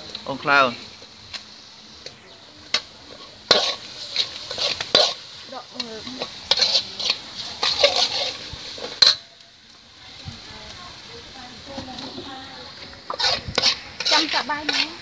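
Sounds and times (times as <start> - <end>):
meat sizzling in oil: 0.0 - 15.0
ladle clanking against a wok: 2.7 - 9.4.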